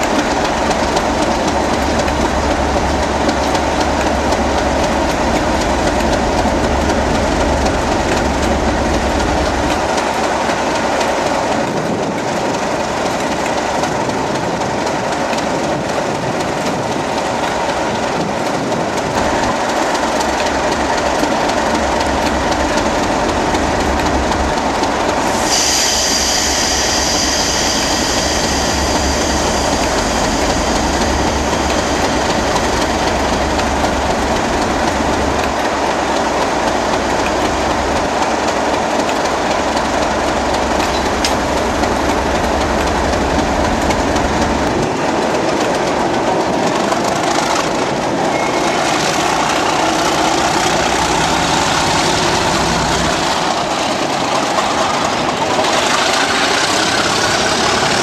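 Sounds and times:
diesel locomotive engine: 0.0s - 58.0s
steel wheel squeal: 48.2s - 53.4s.

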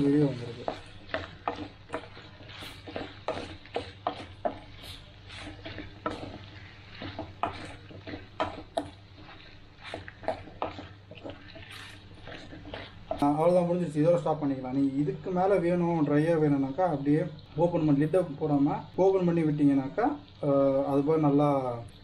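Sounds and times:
wooden spatula scraping a pan: 0.0s - 16.3s
light sizzle: 0.0s - 22.0s.

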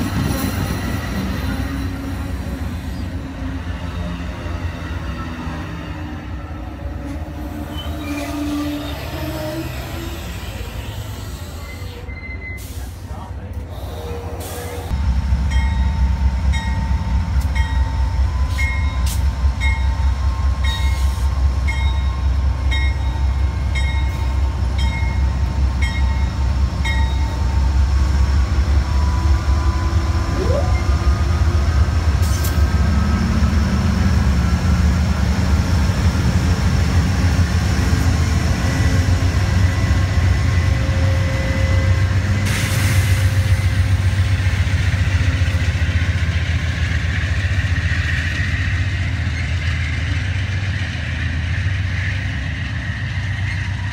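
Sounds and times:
diesel locomotive rumbling: 0.0s - 53.9s
locomotive bell ringing: 15.5s - 27.8s.

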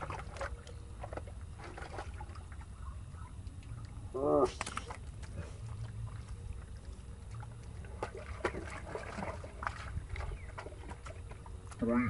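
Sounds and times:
hands squelching through wet mud: 0.0s - 12.0s
wet clicks and splats: 3.4s - 11.8s.

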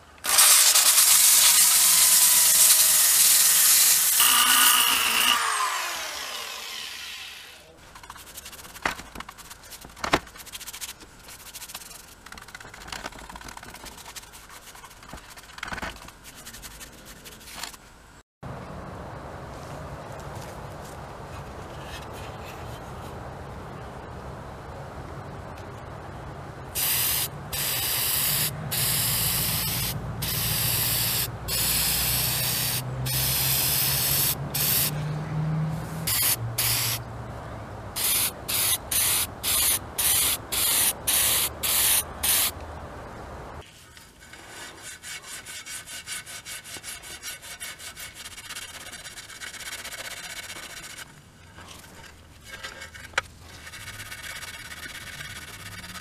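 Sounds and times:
pad scrubbing a panel: 8.0s - 17.8s, 44.2s - 51.2s, 53.4s - 56.0s
spray paint can hissing: 26.8s - 34.9s, 36.1s - 37.0s, 38.0s - 42.6s.

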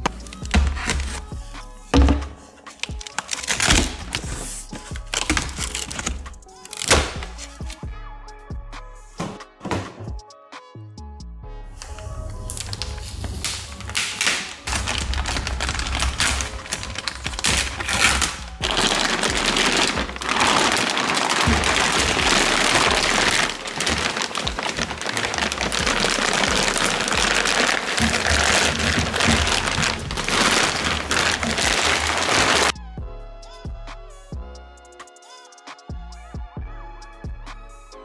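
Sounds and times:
plastic bag crinkling: 0.0s - 1.2s, 2.8s - 7.8s, 11.8s - 32.7s
background music: 0.0s - 38.0s.

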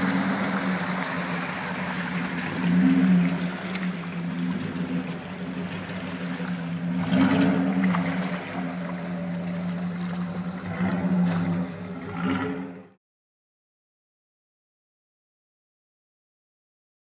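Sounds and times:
mud and water sloshing: 0.0s - 12.9s
engine running at low revs: 0.0s - 13.0s.

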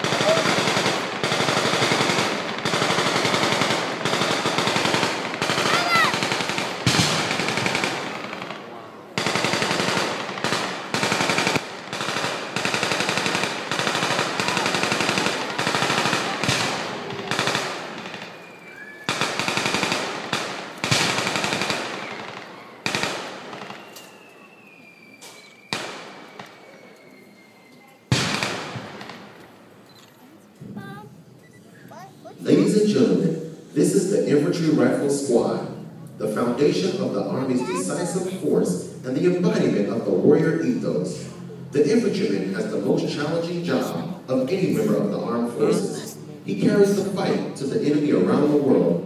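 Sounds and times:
automatic gunfire: 0.0s - 18.4s, 19.1s - 23.9s, 28.1s - 29.4s.

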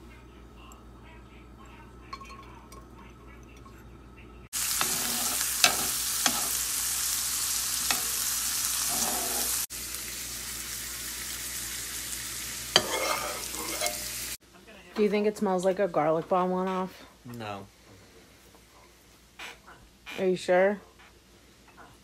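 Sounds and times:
onions sizzling in a pan: 4.5s - 14.4s
garlic sizzling in oil: 4.6s - 14.4s.

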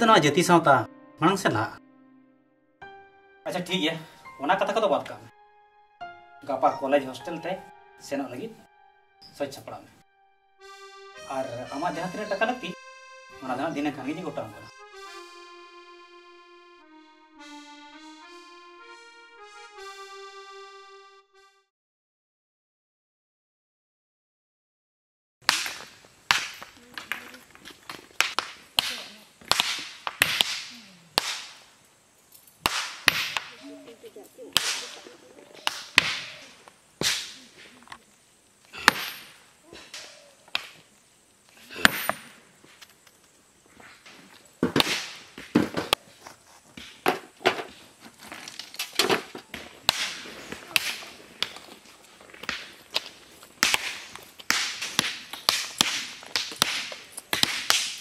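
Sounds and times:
hammers striking rock: 38.8s - 39.4s, 41.8s - 42.3s, 49.0s - 51.5s, 52.4s - 58.0s.

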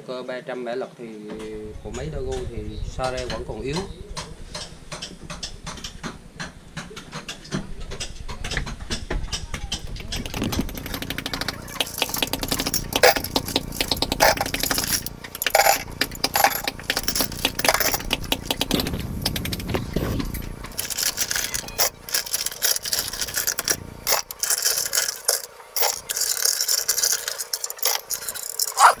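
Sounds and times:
steel bolts clinking together: 10.1s - 18.8s, 20.7s - 29.0s.

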